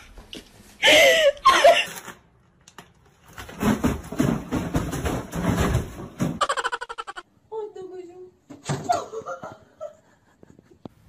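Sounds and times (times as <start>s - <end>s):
box bumping down carpeted stairs: 3.2s - 6.7s.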